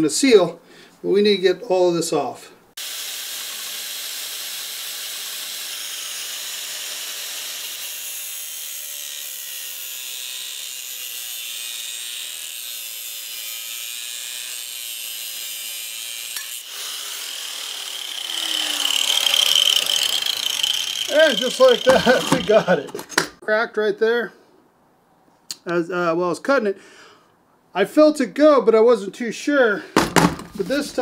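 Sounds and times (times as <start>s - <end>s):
angle grinder cutting steel: 2.8s - 23.3s.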